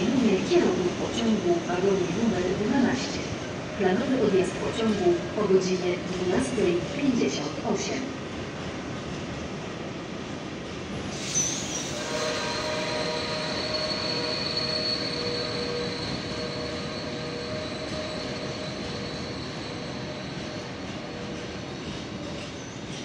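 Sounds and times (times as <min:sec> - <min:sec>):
train wheels rumbling on rail: 0:00.0 - 0:23.0
high squeal from wagons: 0:11.0 - 0:21.8.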